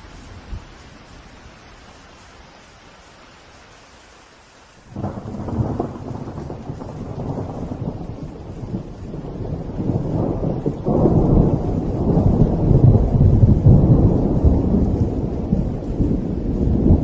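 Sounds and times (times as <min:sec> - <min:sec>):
rain: 0:00.0 - 0:17.0
thunder rumbling: 0:04.9 - 0:17.0.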